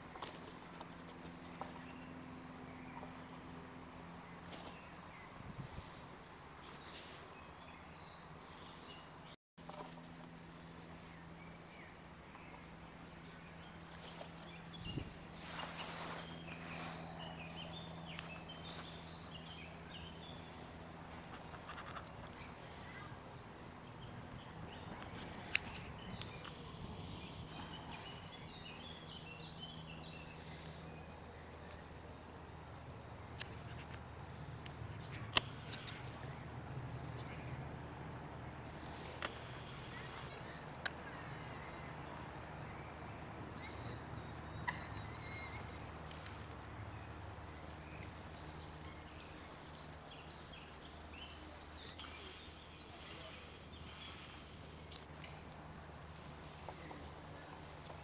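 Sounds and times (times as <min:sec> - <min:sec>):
distant traffic hum: 0:00.0 - 0:58.0
small birds singing: 0:00.0 - 0:58.0
small bird high call: 0:43.6 - 0:46.0.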